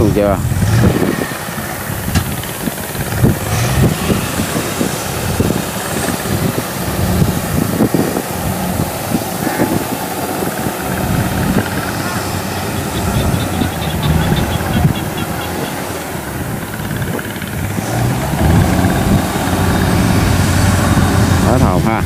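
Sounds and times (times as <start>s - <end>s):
diesel engines running: 0.0s - 22.0s
faint workers calling: 11.6s - 16.5s.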